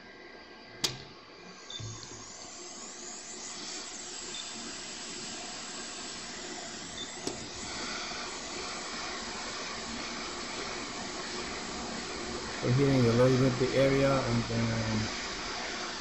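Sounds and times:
hot air station hissing: 0.0 - 16.0
sharp click: 0.8 - 1.1.

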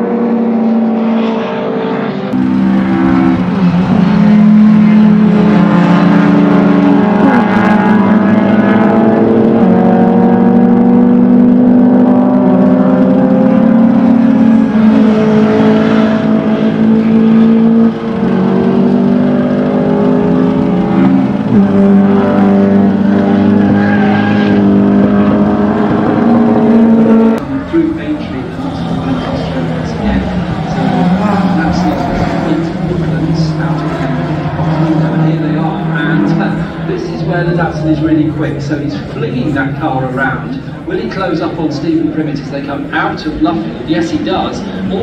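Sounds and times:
car passing close: 0.0 - 45.0
racing car engines at high revs: 0.0 - 45.0.

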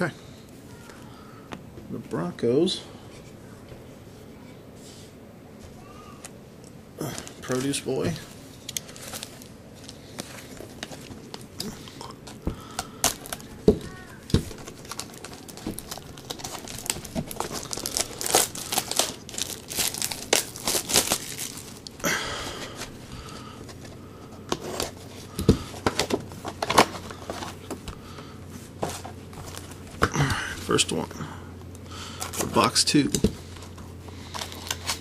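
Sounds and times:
plastic and foil wrapping crinkling: 7.0 - 24.0, 24.6 - 28.0, 28.6 - 30.0, 33.4 - 35.0.

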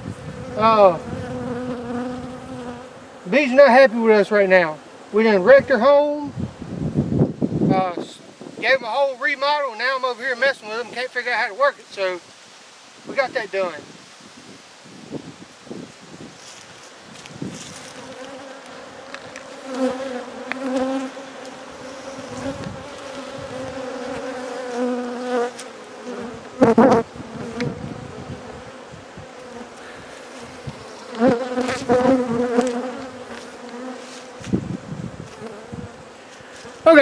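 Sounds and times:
bees buzzing: 0.0 - 5.8, 17.2 - 37.0.

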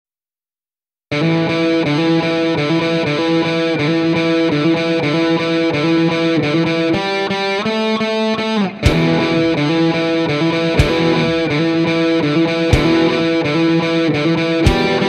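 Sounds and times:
rock music with distorted guitar: 1.1 - 15.0
sharp hit: 8.8 - 13.5.

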